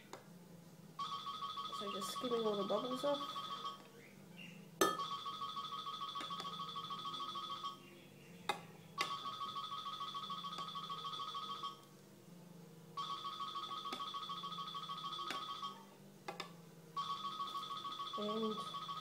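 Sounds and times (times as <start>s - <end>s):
telephone ringing: 1.0s - 3.9s, 4.9s - 7.8s, 9.0s - 11.9s, 13.0s - 15.9s, 16.9s - 19.0s.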